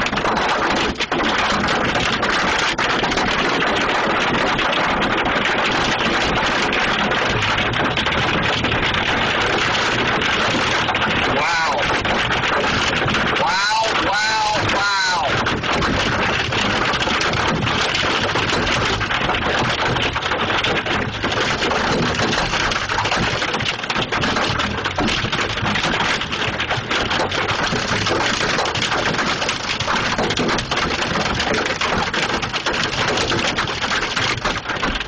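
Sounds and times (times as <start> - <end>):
hail and heavy rain pelting: 0.0 - 35.0.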